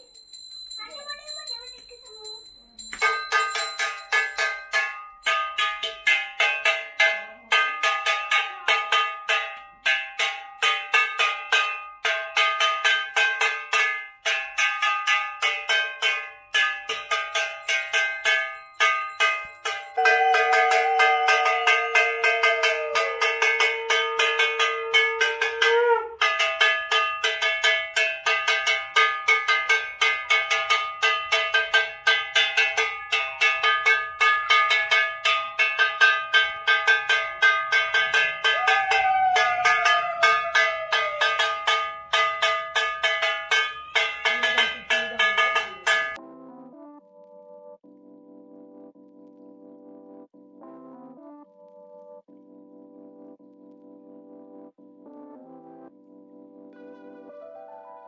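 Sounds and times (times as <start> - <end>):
metal bell ringing rapidly: 0.0 - 46.2.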